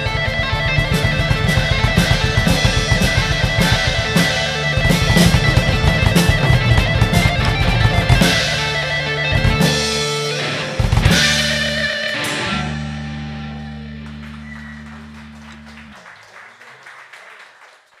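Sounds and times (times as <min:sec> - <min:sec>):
drum and cymbal hits: 0:00.0 - 0:13.5
ringing guitar and bass chord: 0:00.0 - 0:15.8.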